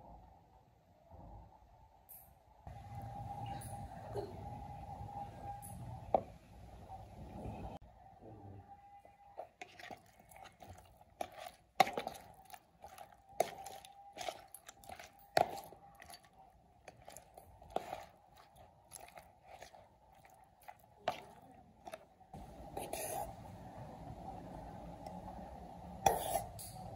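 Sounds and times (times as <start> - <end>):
faint steady hum: 0.0 - 26.9.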